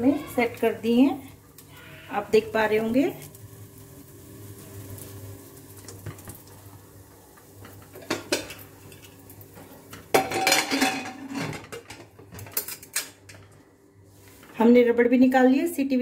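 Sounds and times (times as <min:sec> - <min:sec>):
metal lid scraping and clanking: 0:10.2 - 0:11.9.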